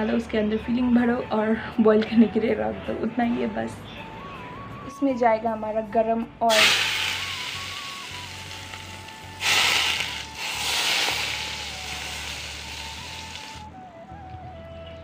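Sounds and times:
hot oil sizzling on meat: 6.5s - 13.7s.

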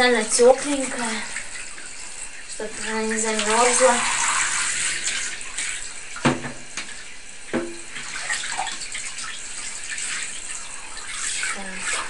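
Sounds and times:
shower head spraying water: 0.0s - 6.9s.

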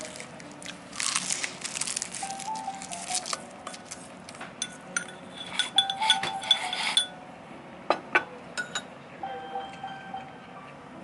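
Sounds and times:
bowl being scraped: 4.6s - 7.2s
ceramic tableware clinking: 4.6s - 7.2s, 7.9s - 8.9s.

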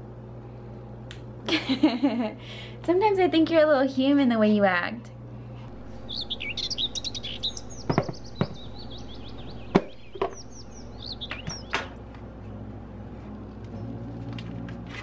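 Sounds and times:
fast high chirping calls: 5.8s - 11.8s.

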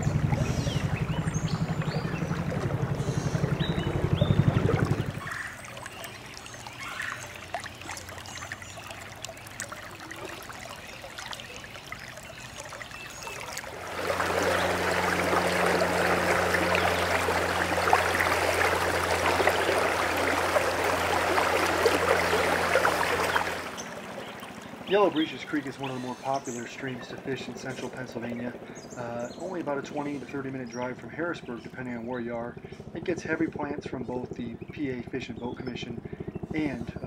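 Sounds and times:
creek water rushing: 0.0s - 28.0s
low steady hum: 0.0s - 37.0s.

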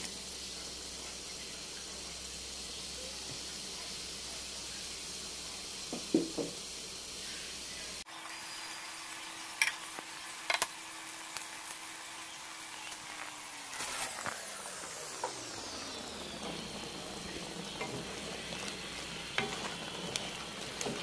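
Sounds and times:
pot simmering hiss: 0.0s - 21.0s.

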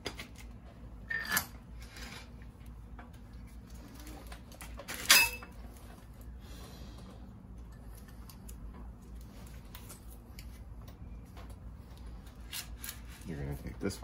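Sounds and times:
metallic clank with ring: 5.1s - 5.5s.

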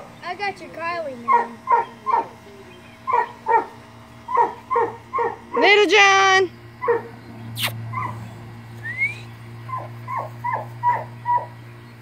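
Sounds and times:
puppies yipping and whimpering: 3.1s - 3.7s, 4.3s - 5.7s, 6.8s - 8.4s, 9.6s - 11.6s
sharp click: 7.6s - 7.8s.

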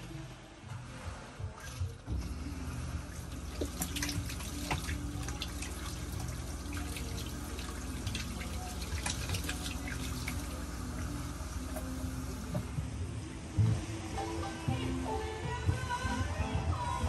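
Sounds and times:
tap water splashing into basin: 3.3s - 12.6s.

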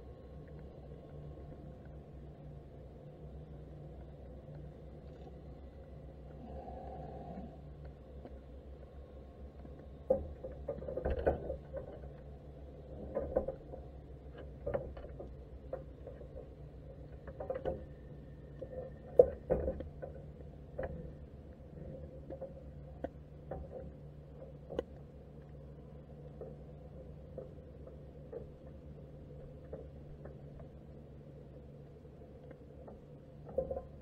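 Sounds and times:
steady low hum: 0.0s - 34.0s
muffled underwater clicks and knocks: 7.8s - 34.0s.

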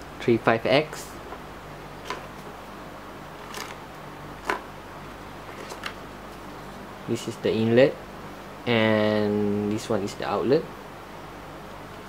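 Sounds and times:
steady low hum: 0.0s - 12.0s
handling noise of pump and cables: 5.5s - 6.0s.

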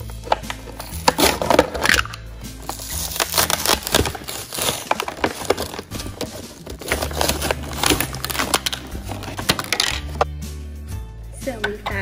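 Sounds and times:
cardboard tearing: 0.2s - 2.0s, 2.6s - 10.2s
plastic packaging crinkling: 0.8s - 10.3s.

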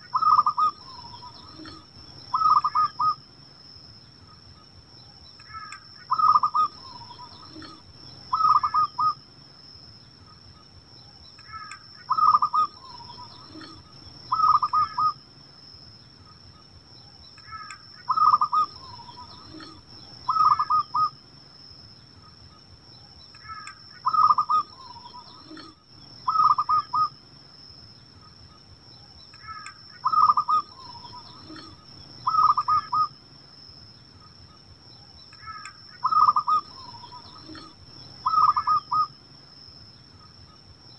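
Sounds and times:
dove cooing: 0.0s - 3.2s, 5.5s - 9.2s, 11.5s - 15.2s, 17.5s - 21.2s, 23.4s - 27.1s, 29.4s - 33.1s, 35.4s - 39.1s.

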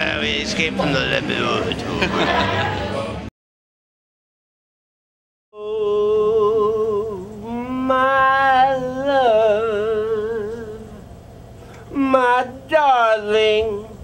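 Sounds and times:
man singing with vibrato: 0.0s - 2.5s, 5.5s - 11.1s, 11.8s - 14.0s.

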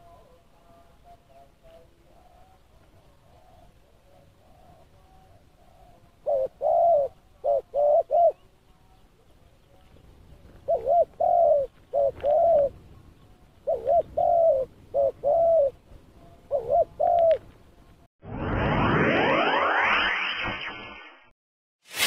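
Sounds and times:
dove cooing: 1.3s - 9.0s, 10.3s - 17.5s.

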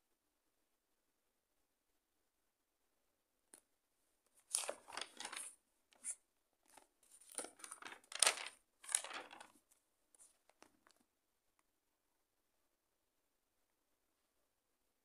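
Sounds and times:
paper pages turning: 4.4s - 11.0s.

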